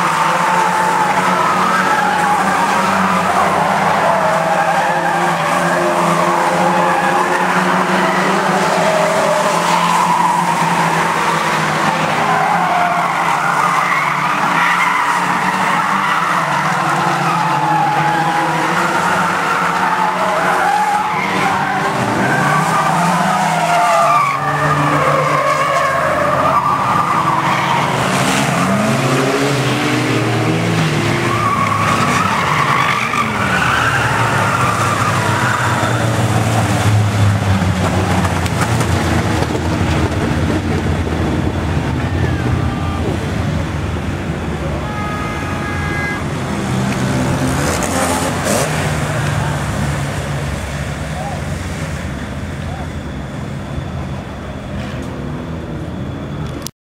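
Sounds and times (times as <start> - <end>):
tyres squealing: 0.0 - 29.5, 30.9 - 37.1
stock car engines revving: 0.0 - 56.7.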